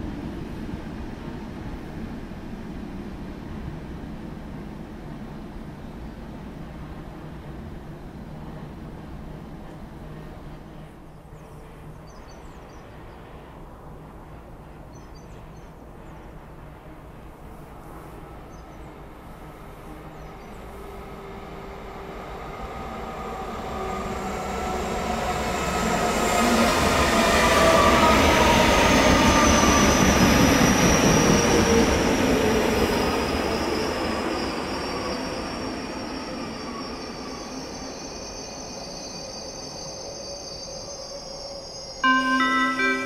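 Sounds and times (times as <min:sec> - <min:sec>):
train running noise: 0:00.0 - 0:43.0
train whining tone: 0:20.6 - 0:43.0.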